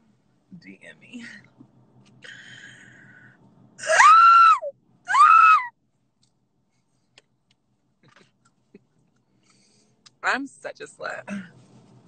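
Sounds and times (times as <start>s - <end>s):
man shrieking with laughter: 3.8s - 5.7s.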